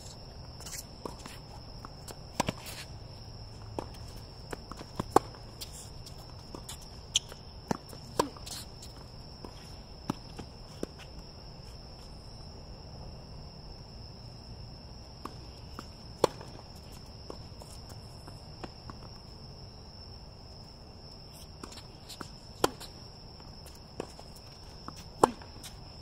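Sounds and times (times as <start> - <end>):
shoe scuffs on hard court: 0.0 - 12.2, 21.2 - 26.0
insects chirring: 0.0 - 26.0
racket hitting tennis ball: 3.6 - 11.0, 15.2 - 19.0, 21.5 - 25.9.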